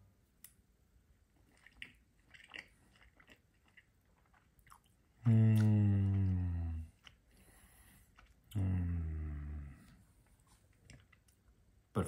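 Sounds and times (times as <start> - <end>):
chewing with wet mouth clicks: 1.4 - 7.4, 8.0 - 8.6, 10.7 - 11.5.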